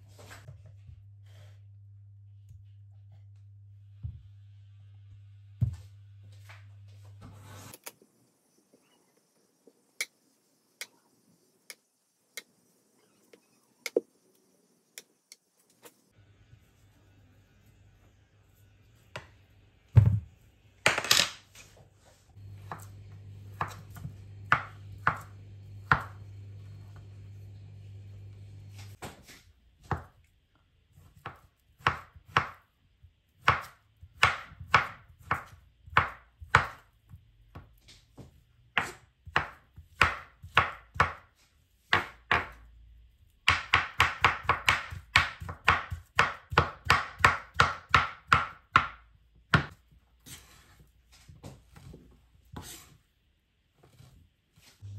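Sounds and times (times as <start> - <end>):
low hum: 22.4 - 29.0
knife chopping on cutting board: 22.6 - 26.2, 31.2 - 32.6, 33.4 - 36.8, 38.8 - 41.2, 41.9 - 42.6, 43.5 - 50.6.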